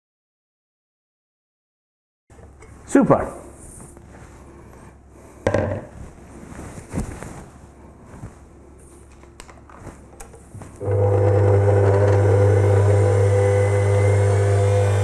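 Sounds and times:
stand mixer motor running: 0:10.8 - 0:15.0.

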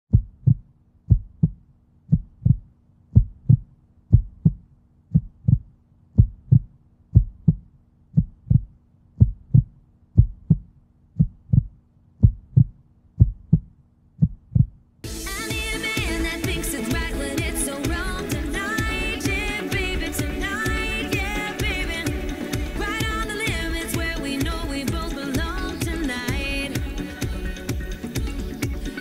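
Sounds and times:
heartbeat thumps: 0:00.1 - 0:29.0.

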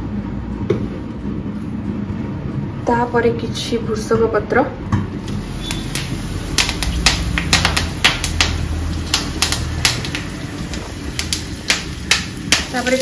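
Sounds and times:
leaves crackling in hot oil: 0:05.2 - 0:13.0.

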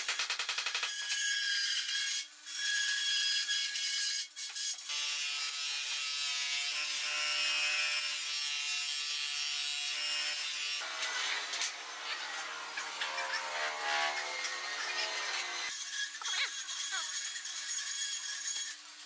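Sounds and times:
wood rubbing and scraping: 0:10.8 - 0:15.7.

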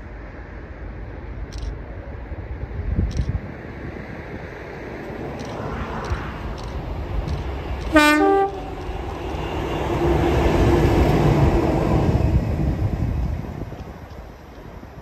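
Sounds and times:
diesel locomotive passing: 0:00.0 - 0:15.0
two-tone locomotive horn: 0:07.8 - 0:10.9.

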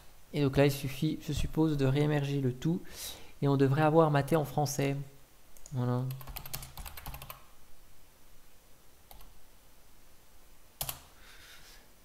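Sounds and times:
typing on computer keyboard: 0:06.1 - 0:07.5, 0:10.8 - 0:11.1.

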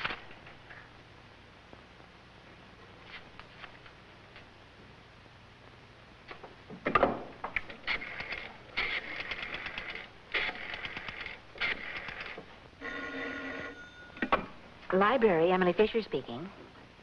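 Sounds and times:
telephone ringing: 0:12.8 - 0:14.2.

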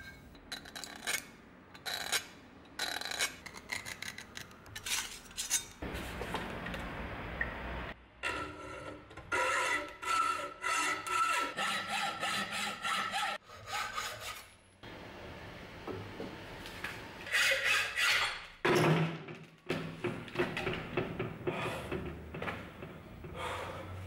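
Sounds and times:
hacksaw rasping through metal: 0:08.3 - 0:14.5, 0:17.3 - 0:18.4.

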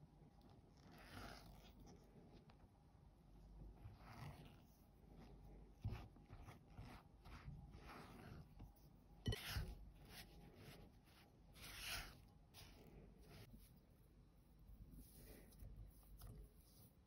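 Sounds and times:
spatula scraping dough in glass bowl: 0:05.8 - 0:13.6.

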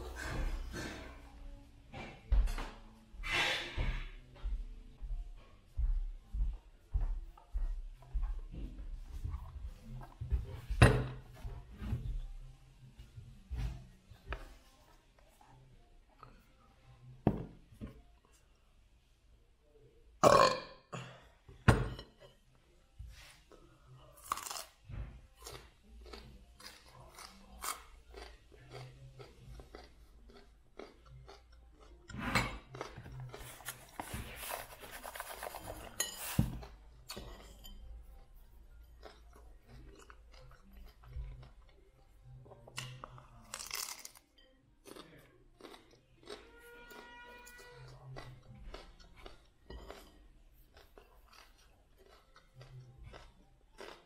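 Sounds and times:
broccoli crunching while chewed: 0:24.2 - 0:24.8, 0:25.4 - 0:36.0, 0:38.8 - 0:41.8, 0:43.5 - 0:44.2, 0:44.8 - 0:47.1, 0:47.9 - 0:54.0.

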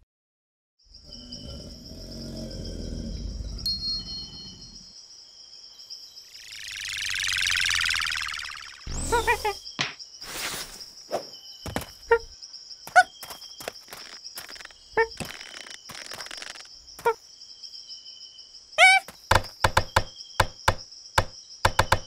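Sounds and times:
high insect drone: 0:00.8 - 0:22.0
short chirping calls: 0:06.3 - 0:17.2, 0:18.8 - 0:22.0.

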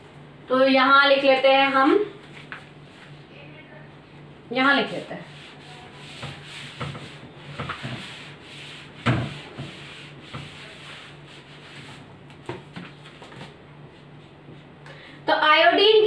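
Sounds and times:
rubbing strokes on whiteboard: 0:04.8 - 0:12.1.

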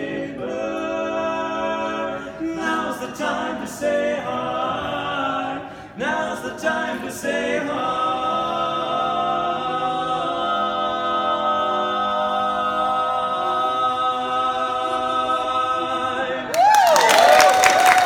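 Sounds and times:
barbershop singers holding a chord: 0:00.0 - 0:18.0
audience applause: 0:16.5 - 0:18.0
audience whooping: 0:16.5 - 0:18.0.

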